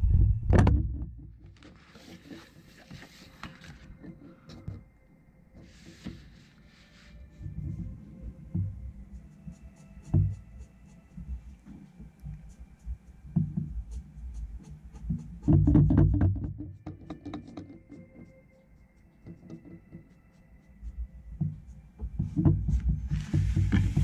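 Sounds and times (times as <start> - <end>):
pen scratching on paper: 12.5 - 15.8
low bumps on desk: 15.2 - 17.8.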